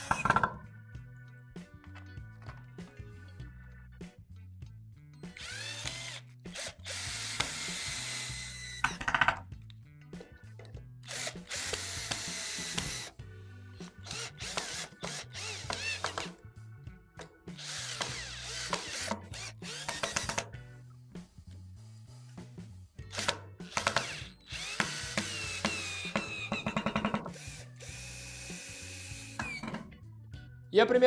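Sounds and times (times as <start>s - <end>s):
background music with steady beat: 0.0s - 31.0s
power drill driving screws: 5.4s - 9.0s, 11.1s - 13.1s, 13.8s - 16.3s, 17.6s - 20.5s, 23.1s - 29.8s.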